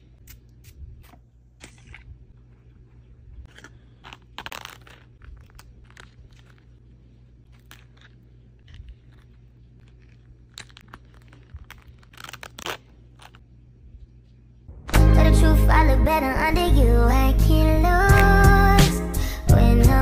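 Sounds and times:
low steady hum: 0.0 - 20.0
packaging crinkles and rustles: 3.5 - 13.4.

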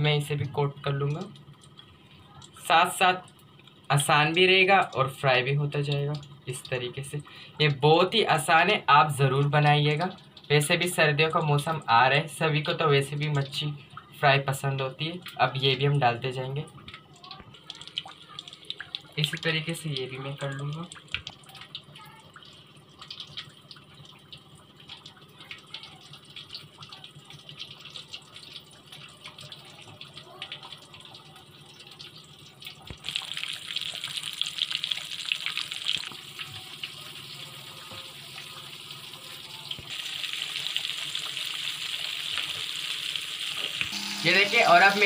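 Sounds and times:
fish frying in oil: 0.0 - 45.0.

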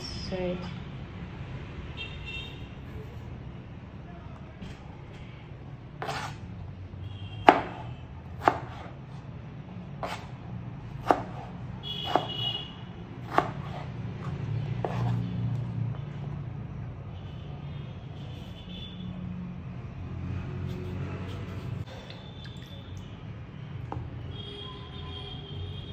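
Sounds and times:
knife chopping on plastic board: 6.0 - 6.4, 7.4 - 7.8, 8.4 - 9.0, 10.0 - 10.3, 11.0 - 12.4, 13.2 - 15.2.

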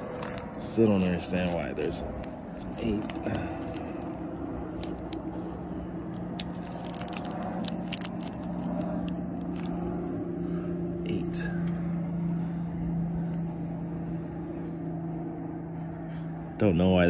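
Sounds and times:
plastic sleeve crinkling: 0.0 - 9.9
low hum: 0.0 - 17.0.

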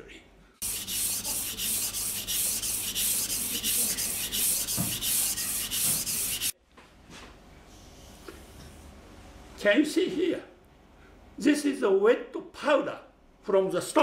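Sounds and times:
knife scraping on a whetstone: 0.6 - 6.6.

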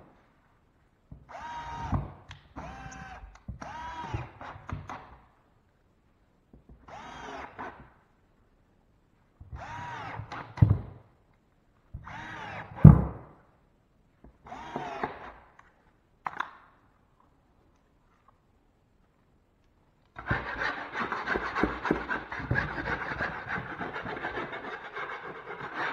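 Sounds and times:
drill driving screws: 1.3 - 5.1, 6.9 - 7.8, 9.6 - 10.8, 12.0 - 13.0, 14.4 - 15.4, 20.2 - 24.3.

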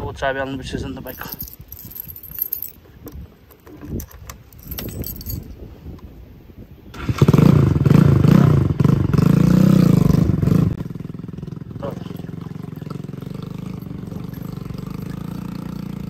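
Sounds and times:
keys jingling: 1.1 - 5.6, 13.7 - 15.3
motorcycle engine running loudly: 7.2 - 16.0.

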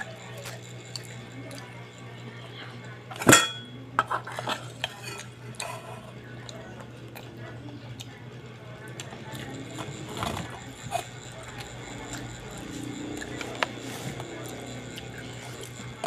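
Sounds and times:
fork and spoon clinking on pot: 3.2 - 5.8
low hum: 8.3 - 16.0.

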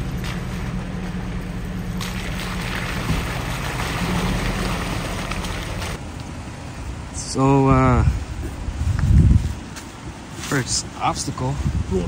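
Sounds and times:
vehicle engine droning: 0.0 - 7.1.

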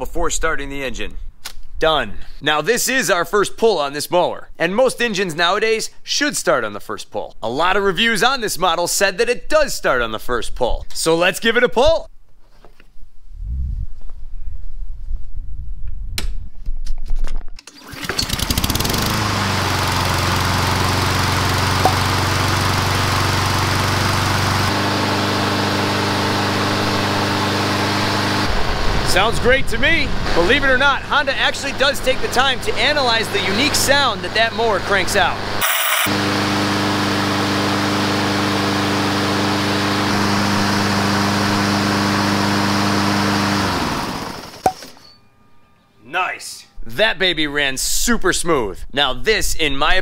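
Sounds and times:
lawn mower engine running: 17.6 - 29.3, 30.1 - 45.0.

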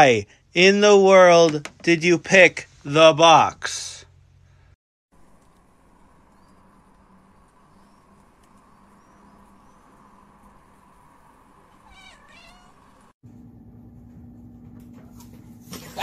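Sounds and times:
faint outdoor background: 0.0 - 13.2
cat meowing: 11.8 - 13.1.

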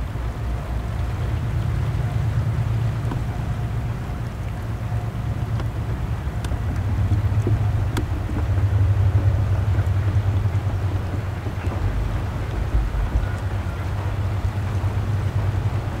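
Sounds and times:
distant diesel locomotive rumble: 0.0 - 16.0
wagons rolling: 2.8 - 16.0.

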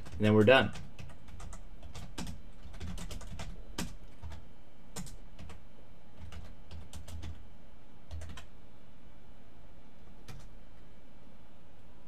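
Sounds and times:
computer keyboard typing: 0.0 - 5.6, 6.2 - 7.4, 8.1 - 8.5, 10.2 - 10.5
low steady hum: 0.0 - 12.0.

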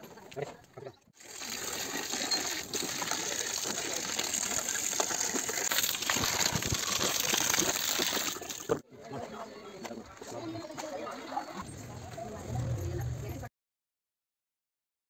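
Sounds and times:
hose water splashing into pit: 1.2 - 8.8.

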